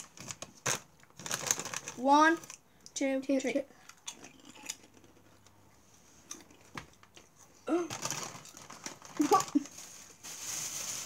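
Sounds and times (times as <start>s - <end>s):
girl making wordless vocal sounds: 7.7s - 7.9s.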